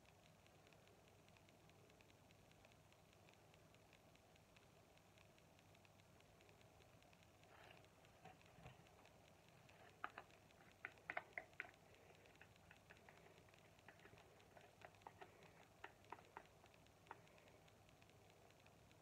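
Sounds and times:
plastic cup clicks and ticks: 0:07.5 - 0:19.0.

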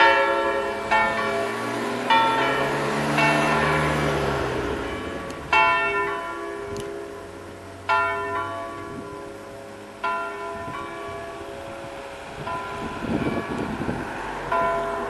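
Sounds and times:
church bells ringing: 0:00.0 - 0:15.0.

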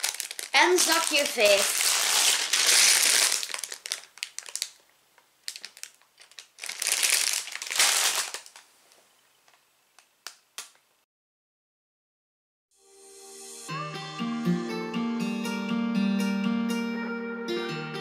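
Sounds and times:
plastic bag crinkling: 0:00.0 - 0:08.7.

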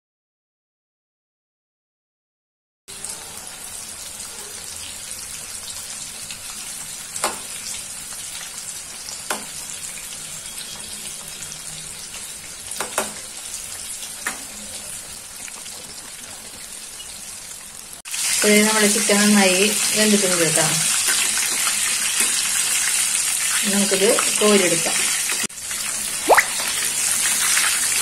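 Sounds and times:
chicken deep-frying sizzle: 0:02.9 - 0:28.0
spatula knocking on pan: 0:09.3 - 0:09.5.

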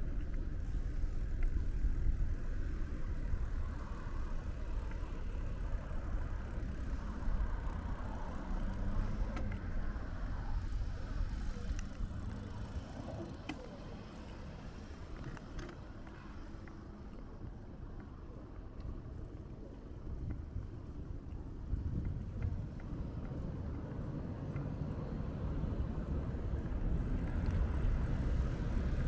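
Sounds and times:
road traffic rumble: 0:00.0 - 0:29.0.

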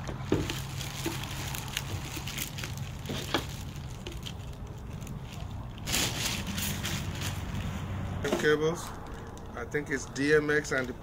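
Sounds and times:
plastic bag crinkling: 0:00.0 - 0:07.8.

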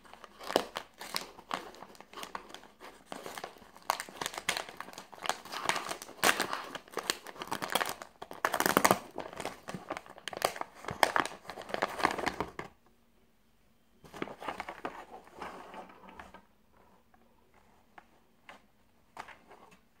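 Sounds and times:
plastic packaging crinkling: 0:00.0 - 0:12.6.

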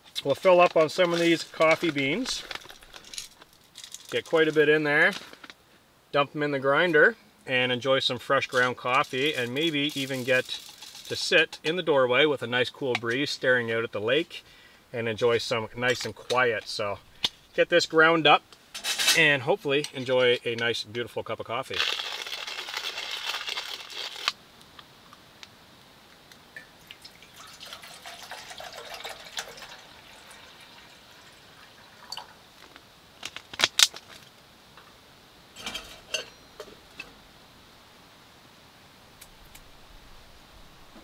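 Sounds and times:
hand coffee grinder grinding: 0:08.6 - 0:11.2, 0:21.7 - 0:24.4
water pouring into metal mug: 0:26.6 - 0:32.4
metal cookware clinking: 0:35.6 - 0:36.7.

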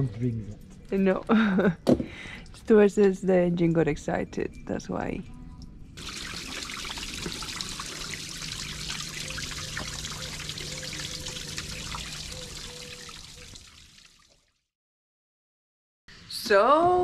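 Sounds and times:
low steady hum: 0:00.0 - 0:13.6
water trickling onto wet concrete: 0:06.0 - 0:14.6.

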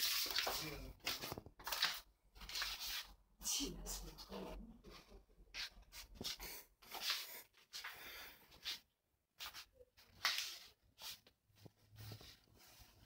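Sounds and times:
breathing and sniffing: 0:06.2 - 0:08.9.

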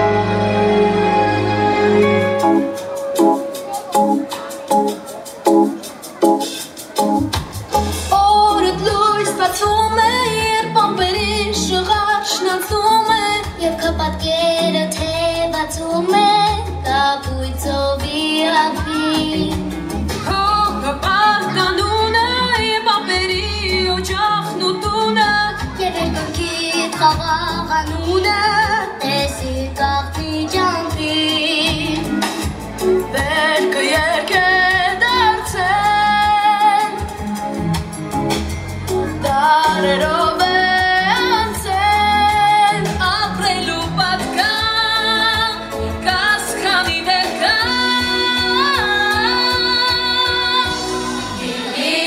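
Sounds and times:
backing track with pulsing bass: 0:00.0 - 0:51.8
young women singing a pop song: 0:08.1 - 0:32.3, 0:33.1 - 0:37.2, 0:39.2 - 0:52.0.

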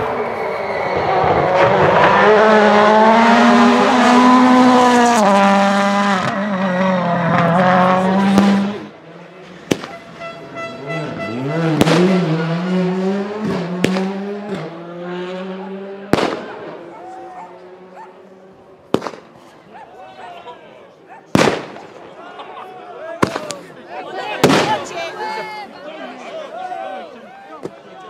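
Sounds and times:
rally car engine at high revs: 0:00.0 - 0:18.5
car engine revving: 0:00.0 - 0:19.4
sharp cracks: 0:18.9 - 0:19.4, 0:21.4 - 0:22.0.

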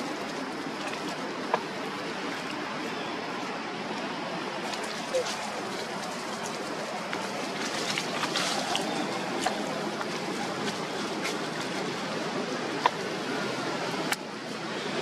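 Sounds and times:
steady rushing background noise: 0:00.0 - 0:15.0.

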